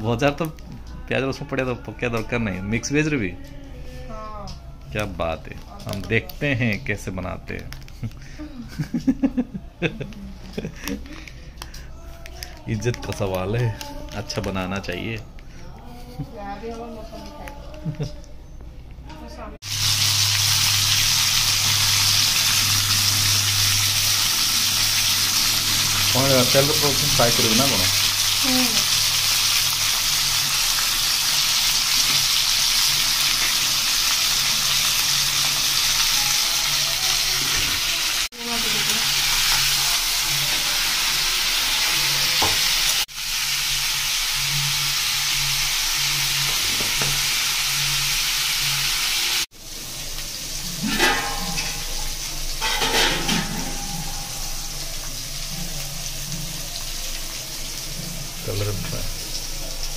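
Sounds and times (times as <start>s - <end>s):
vegetables sizzling in oil: 19.6s - 59.9s.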